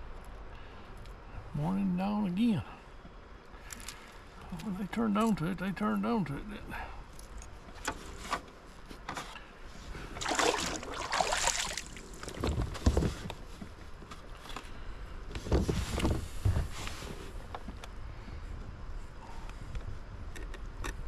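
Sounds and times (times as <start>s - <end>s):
rustling handling noise: 7.1s - 17.8s.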